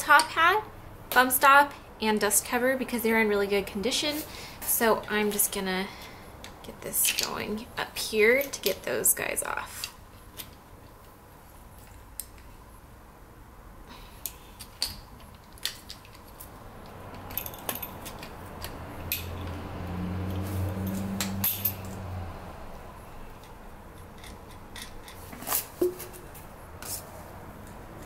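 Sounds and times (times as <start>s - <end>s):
metallic clicks of wrenches: 14.2s - 19.6s, 20.3s - 22.0s, 23.3s - 25.7s.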